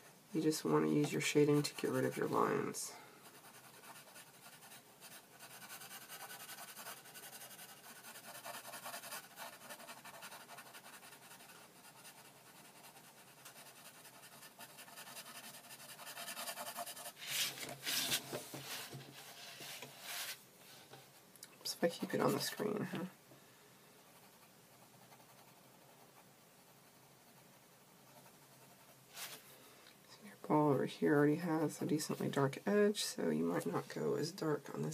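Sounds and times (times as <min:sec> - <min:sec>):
pencil scratching on paper: 0:03.2 - 0:20.3, 0:24.1 - 0:29.4
paper rustling: 0:17.2 - 0:20.4.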